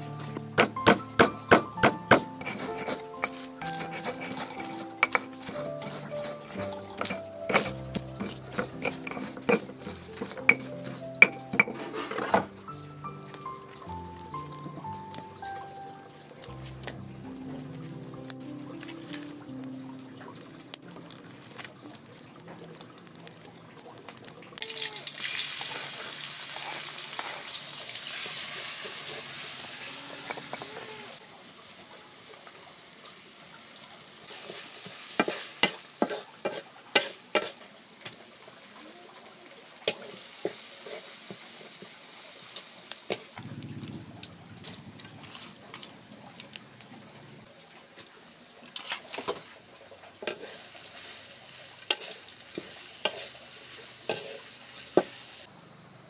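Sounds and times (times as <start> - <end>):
oil sizzling in wok: 0.0 - 56.0
spatula scraping a wok: 1.1 - 12.6, 25.7 - 30.9, 34.3 - 37.6, 39.9 - 41.9, 45.2 - 45.9, 48.8 - 49.5, 50.2 - 55.4.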